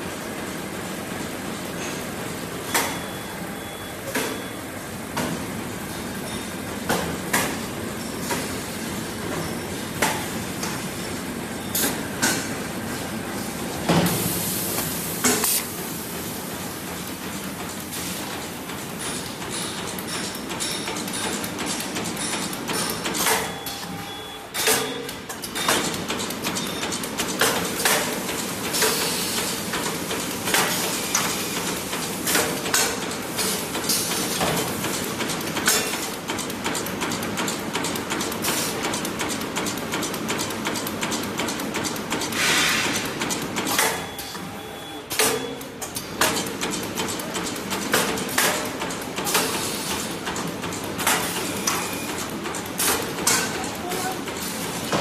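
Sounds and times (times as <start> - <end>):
machine hiss: 14.0 - 16.8, 28.7 - 29.7, 42.3 - 43.2, 49.3 - 50.1
machine clattering: 16.9 - 23.6, 45.1 - 55.0.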